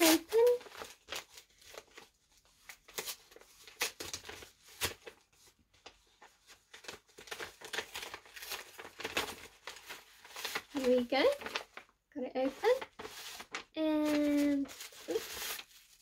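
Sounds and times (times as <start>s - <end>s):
parcel packaging rustling and tearing: 0.0s - 16.0s.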